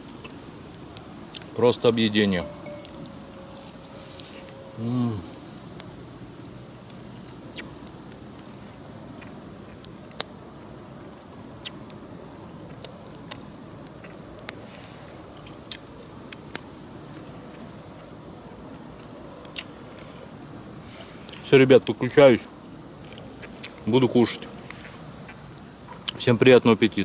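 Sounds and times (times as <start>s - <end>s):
campfire crackling and popping: 0.0s - 27.0s.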